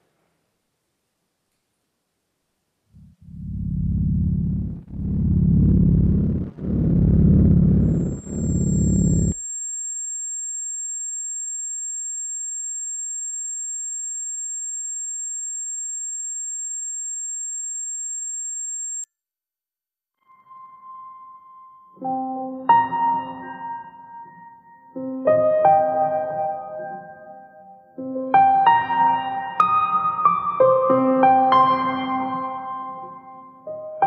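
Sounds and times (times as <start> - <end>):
deep low rumble: 3.0 - 9.4
high-pitched ringing tone: 7.8 - 19.1.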